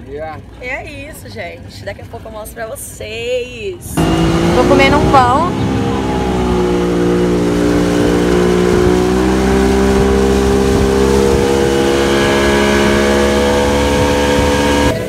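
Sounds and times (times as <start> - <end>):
motorboat engine running: 4.0 - 15.0.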